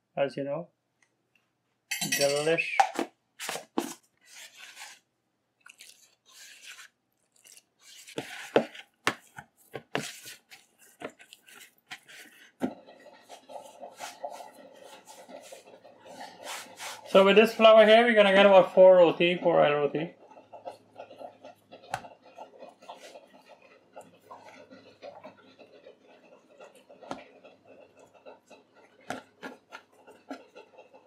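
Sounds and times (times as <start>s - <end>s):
hands mixing dough in plastic bowl: 2.5s - 31.0s
kneading dough on wooden board: 5.8s - 18.6s, 20.1s - 31.0s.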